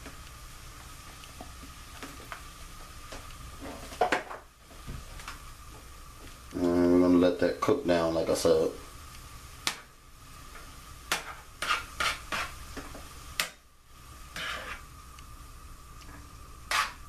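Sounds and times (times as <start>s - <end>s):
utensil scraping frying pan: 10.6s - 15.0s, 16.6s - 17.0s.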